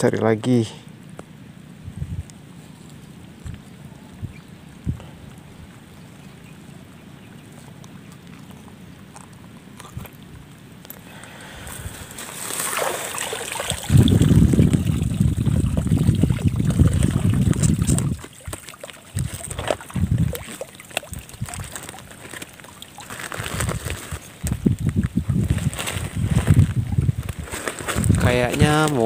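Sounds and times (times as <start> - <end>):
water sloshing and splashing: 12.0 - 24.6.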